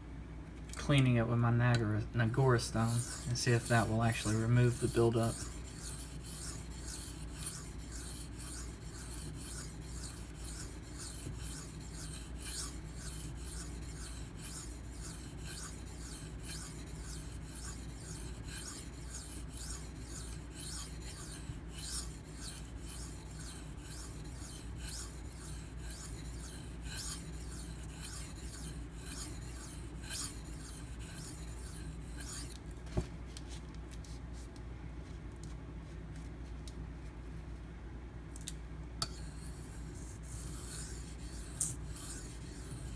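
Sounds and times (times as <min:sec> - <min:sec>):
knife scraping on sharpening stone: 0:02.6 - 0:32.6, 0:39.0 - 0:42.9.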